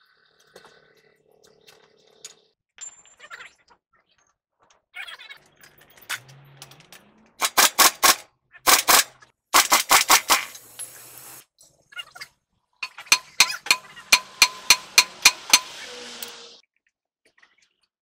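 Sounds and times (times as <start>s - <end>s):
sharp metal strikes: 12.8s - 16.5s
impact wrench hammering: 12.8s - 16.6s.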